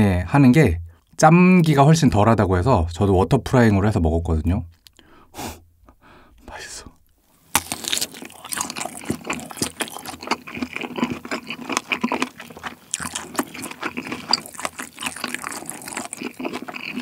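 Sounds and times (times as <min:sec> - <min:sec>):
wet chewing mouth sounds: 0:07.5 - 0:17.0.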